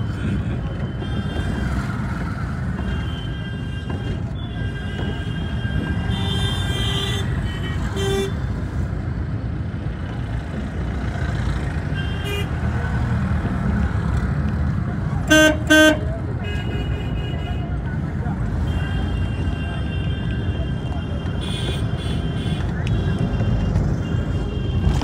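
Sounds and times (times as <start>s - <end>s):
traffic rumble: 0.0s - 25.0s
vehicle horn toots: 15.3s - 17.2s.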